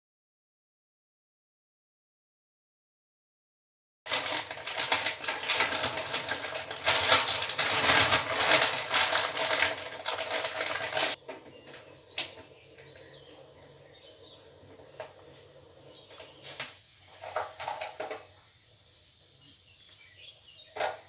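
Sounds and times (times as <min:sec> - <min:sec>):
plastic packet crinkling: 0:04.1 - 0:11.2.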